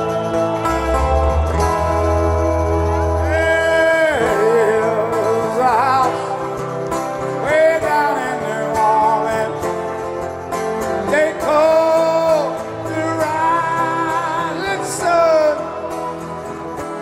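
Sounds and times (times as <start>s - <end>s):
acoustic guitar: 0.0s - 17.0s
live rock band playing: 0.0s - 17.0s
male singer singing: 3.2s - 10.2s, 10.9s - 17.0s.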